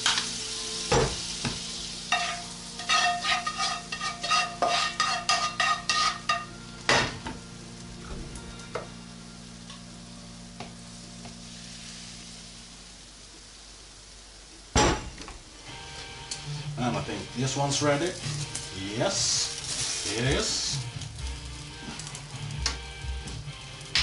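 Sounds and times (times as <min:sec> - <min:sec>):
butter sizzling in frying pan: 0:00.0 - 0:14.8, 0:15.4 - 0:24.0
metal taps and scrapes on pan: 0:02.1 - 0:06.5.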